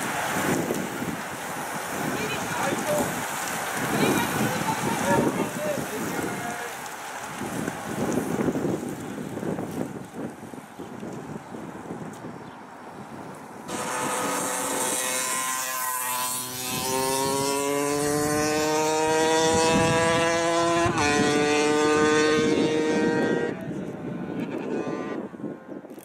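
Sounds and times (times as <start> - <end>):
wind and road noise: 0.0 - 26.0
vehicle engine accelerating: 13.7 - 23.6.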